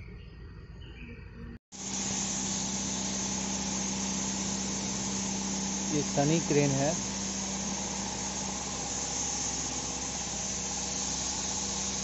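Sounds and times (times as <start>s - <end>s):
low machinery hum: 0.0s - 12.0s
constant high hiss: 1.8s - 12.0s.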